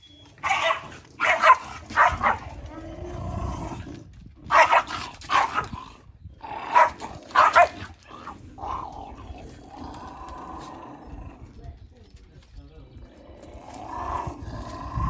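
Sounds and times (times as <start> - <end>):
dogs barking: 0.4 - 2.6, 4.5 - 5.8, 6.6 - 9.0.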